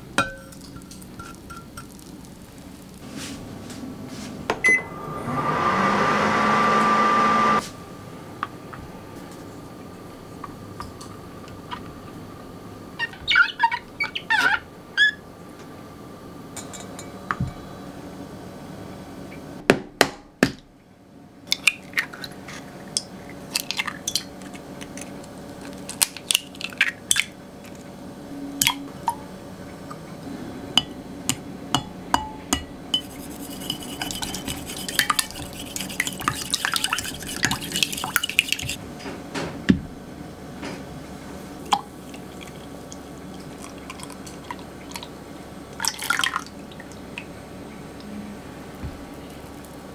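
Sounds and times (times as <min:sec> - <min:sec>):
eggs beaten in glass jug: 0:33.0 - 0:38.8.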